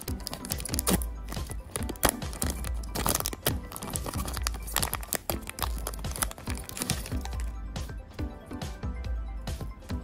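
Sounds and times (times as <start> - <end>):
foil pack crinkling: 0.0 - 7.5
background music: 0.0 - 10.0.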